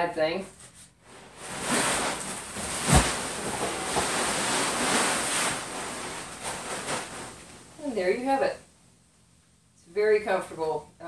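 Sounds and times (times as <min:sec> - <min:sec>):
air lounger fabric rustling: 0:00.5 - 0:08.6
body thumping onto lounger: 0:01.3 - 0:07.6.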